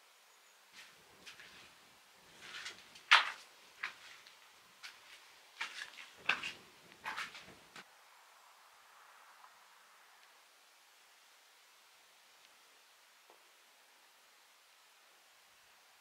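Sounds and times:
footsteps on dirt and grit: 0.8s - 7.8s.

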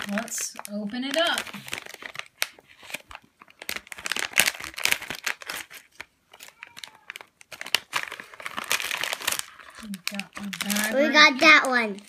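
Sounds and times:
plastic bag crinkling and tearing: 0.0s - 12.0s.

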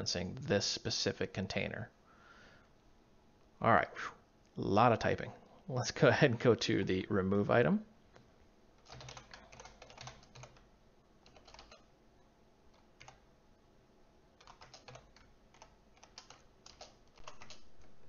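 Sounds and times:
faint keyboard typing: 8.1s - 11.9s, 12.7s - 13.3s, 14.4s - 18.0s.

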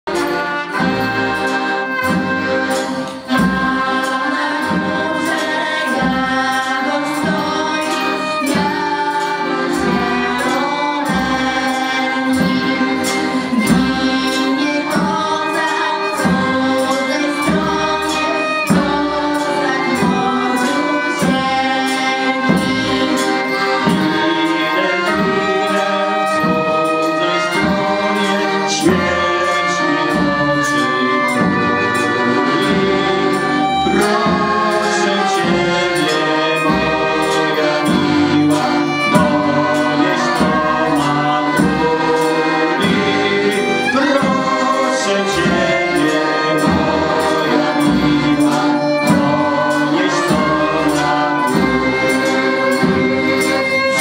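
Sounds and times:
accordions: 0.0s - 54.0s
trumpet: 0.0s - 54.0s
steady beat: 0.1s - 54.0s
woman and group singing: 0.1s - 54.0s.

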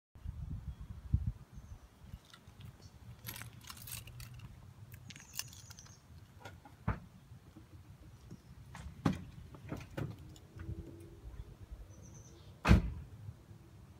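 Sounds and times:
keys jangling: 3.2s - 5.9s.

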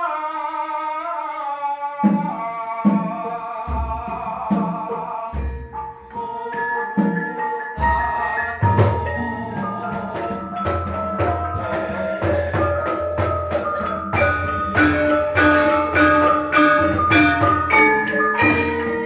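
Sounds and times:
hand drum strokes: 2.0s - 19.0s
metallophones and gong-chimes ringing: 7.8s - 19.0s.

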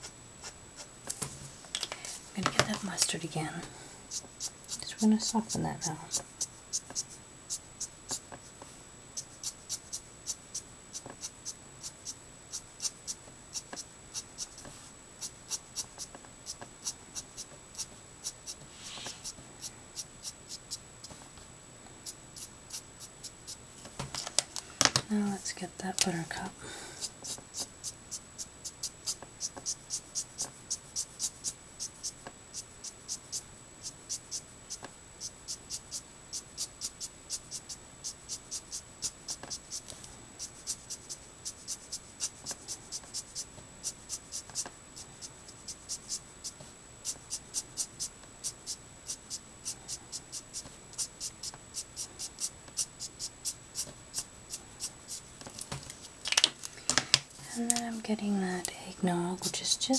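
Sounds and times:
marker scratching on card: 0.4s - 0.9s, 4.1s - 8.6s, 9.2s - 21.2s, 22.0s - 23.6s, 27.0s - 55.3s.

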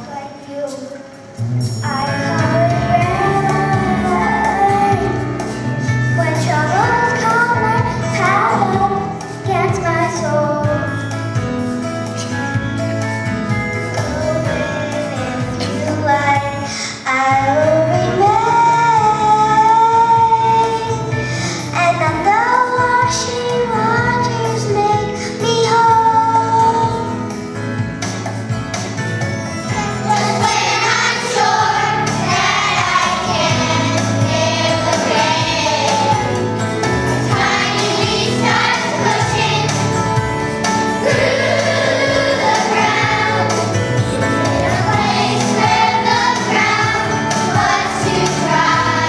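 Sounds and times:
musical accompaniment: 0.0s - 49.0s
girl singing into a microphone: 1.8s - 5.3s, 6.2s - 11.0s, 14.1s - 21.0s, 21.8s - 27.1s
children singing into microphones: 1.9s - 5.4s, 29.7s - 40.1s, 40.8s - 49.0s.

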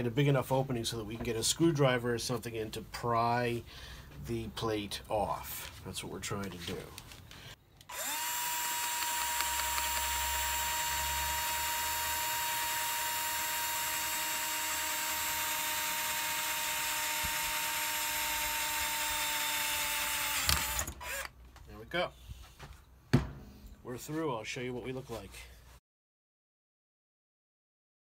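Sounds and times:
power drill boring through metal: 7.9s - 21.3s.

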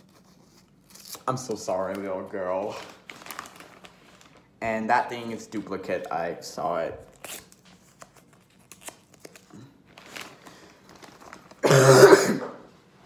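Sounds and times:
plastic bag crinkling: 1.6s - 4.7s, 8.4s - 11.6s
wrapper rustling: 1.6s - 4.7s, 7.2s - 11.6s.

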